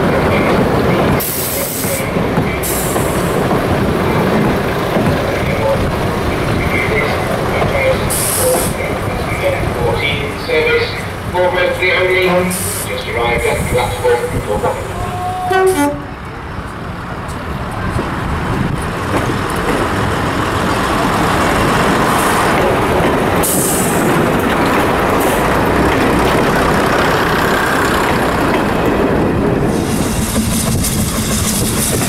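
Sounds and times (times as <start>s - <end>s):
steam train rushing noise: 0.0s - 32.0s.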